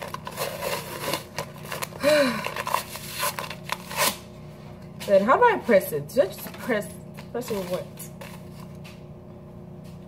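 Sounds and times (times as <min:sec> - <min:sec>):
paper wrapper crinkling and tearing: 0:00.0 - 0:04.3.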